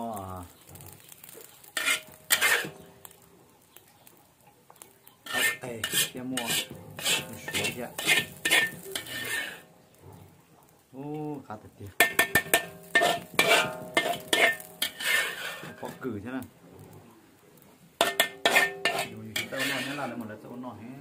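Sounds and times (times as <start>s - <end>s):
metal spatula scraping a wok: 0.6s - 3.2s, 5.2s - 10.0s, 12.0s - 16.2s, 18.0s - 20.6s.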